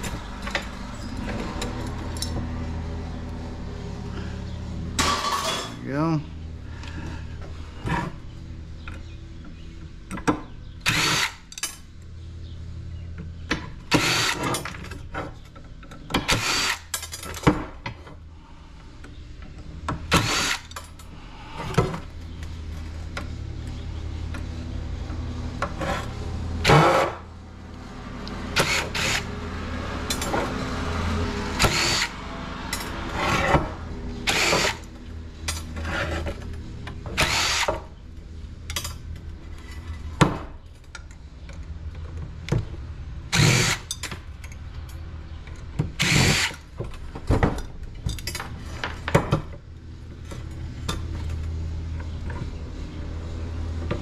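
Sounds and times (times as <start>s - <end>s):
cordless drill motor whine: 31.6s - 32.2s, 37.2s - 37.7s, 46.0s - 46.6s.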